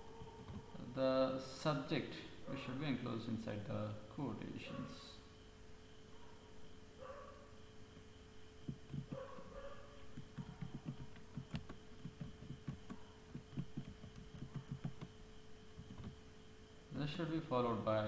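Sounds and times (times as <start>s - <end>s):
electrical hum: 0.0s - 18.0s
keyboard keystrokes: 10.1s - 15.1s, 15.8s - 16.2s.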